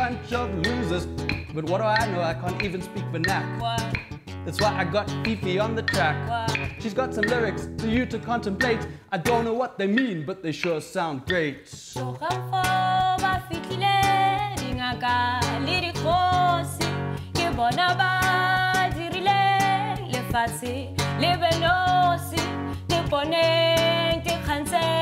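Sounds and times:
acoustic guitar strumming: 0.0s - 25.0s
woman singing long notes: 6.0s - 6.8s, 12.0s - 25.0s.

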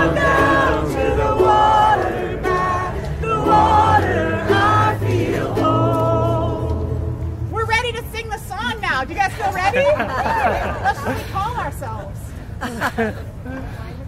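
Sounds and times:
crowd singing folk chorus: 0.0s - 7.5s
acoustic guitar: 0.0s - 7.6s.

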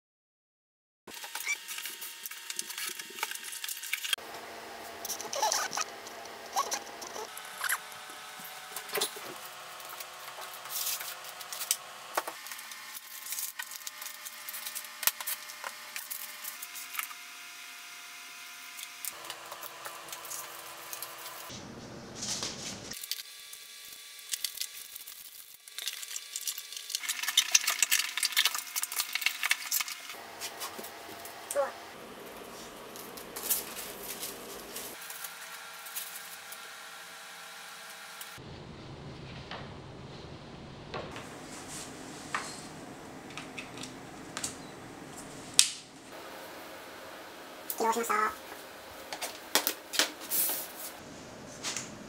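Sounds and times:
packaging rustling and crackling: 24.2s - 30.8s.

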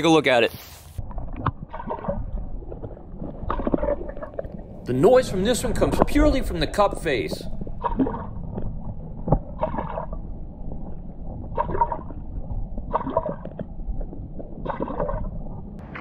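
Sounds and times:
muffled gurgling pops underwater: 1.0s - 10.2s, 11.5s - 12.2s.

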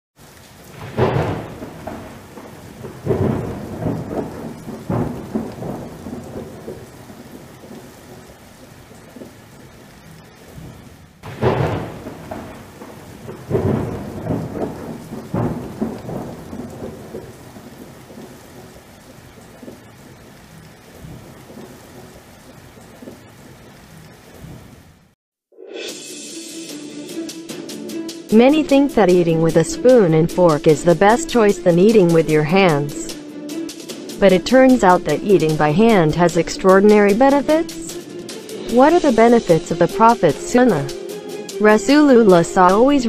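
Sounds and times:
rain: 0.2s - 25.2s, 26.2s - 43.0s
thunder cracks and rumbles: 0.5s - 8.4s, 10.5s - 20.2s, 20.9s - 22.2s.

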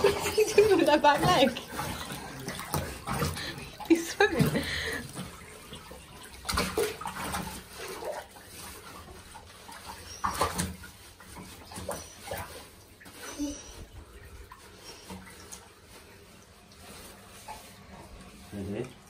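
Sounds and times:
water splashing in a bathtub: 0.0s - 19.0s
dog whining: 13.1s - 14.0s.

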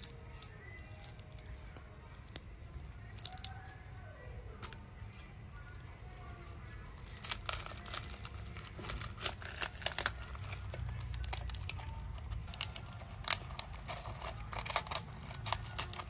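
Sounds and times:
food crackling and tearing: 0.0s - 16.0s.

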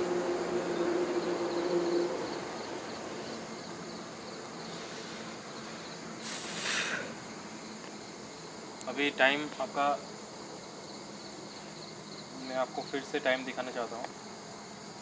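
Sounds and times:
crickets chirping: 0.0s - 15.0s
steady low hum: 0.0s - 15.0s.

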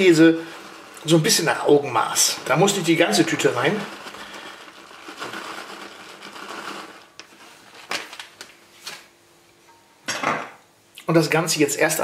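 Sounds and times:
plastic bag rustling: 0.0s - 9.1s.

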